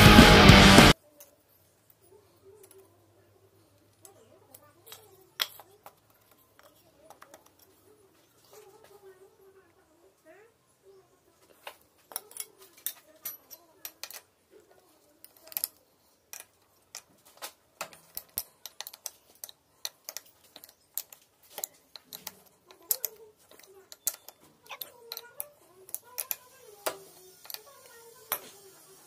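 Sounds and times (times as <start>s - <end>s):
spanner clicking on metal bolts: 17.8s - 28.4s.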